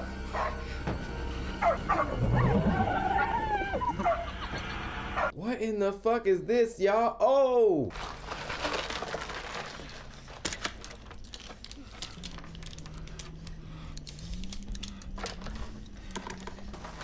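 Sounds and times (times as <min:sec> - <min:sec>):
low steady drone: 0:00.0 - 0:05.2
rifle clicks and rattles: 0:09.8 - 0:17.0.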